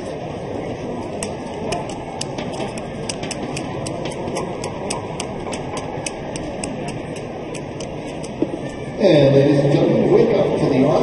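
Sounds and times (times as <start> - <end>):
crowd hubbub: 0.0 - 11.0
fast high ticking clicks: 1.2 - 8.4.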